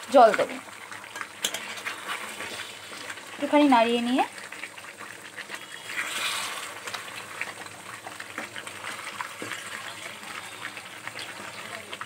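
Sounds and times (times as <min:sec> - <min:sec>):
curry sauce sizzling and bubbling: 0:00.0 - 0:12.0
spatula scraping metal pan: 0:05.5 - 0:07.0.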